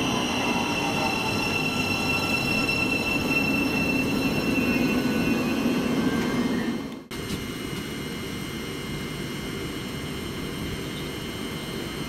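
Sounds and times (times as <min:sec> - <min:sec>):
high ringing tones: 0:00.0 - 0:06.8
train rolling rumble: 0:00.0 - 0:07.9.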